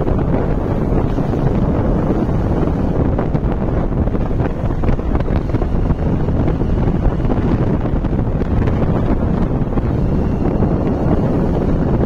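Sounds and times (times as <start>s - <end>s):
motorcycle engine: 0.0s - 12.0s
wind buffeting microphone: 0.0s - 12.0s.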